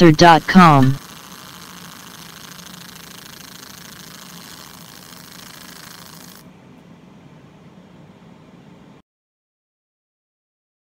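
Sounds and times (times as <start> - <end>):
machine hum: 0.0 - 9.0
laser cutting hiss: 0.4 - 6.4.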